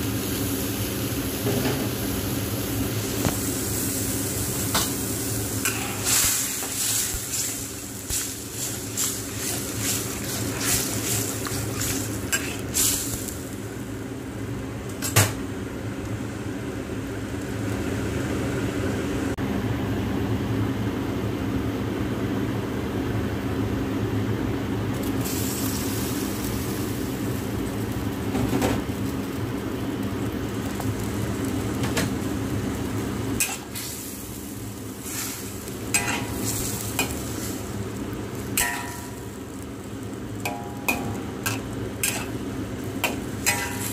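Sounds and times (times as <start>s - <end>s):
sauce sizzling in a wok: 0.0s - 18.6s, 24.9s - 43.9s
spatula scraping a wok: 5.6s - 13.2s, 33.4s - 33.9s, 35.0s - 37.7s, 40.5s - 42.4s, 43.0s - 43.9s.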